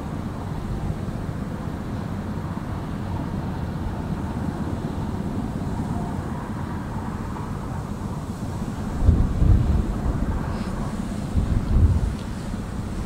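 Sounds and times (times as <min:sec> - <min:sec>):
ferry engines rumbling: 0:00.0 - 0:13.0.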